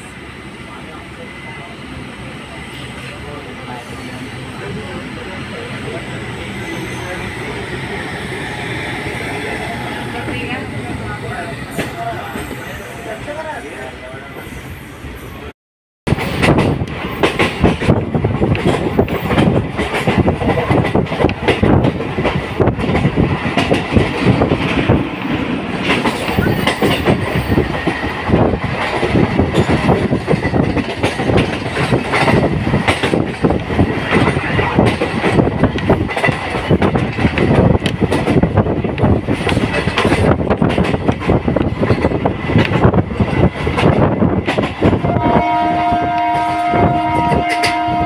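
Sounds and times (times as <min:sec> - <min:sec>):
train running rumble: 0:00.0 - 0:14.6, 0:16.1 - 0:48.0
wheels clattering over rails: 0:16.2 - 0:45.0.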